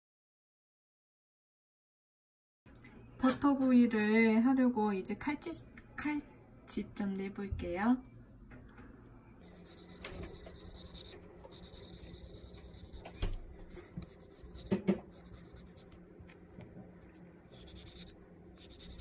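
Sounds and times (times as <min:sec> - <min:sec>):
knife scraping on cutting board: 0:09.4 - 0:16.0, 0:17.5 - 0:19.0.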